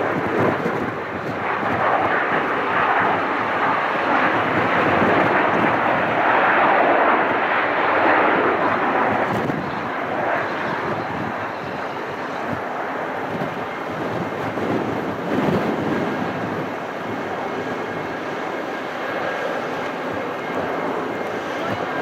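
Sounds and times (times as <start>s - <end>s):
jet engines rushing: 0.0s - 22.0s.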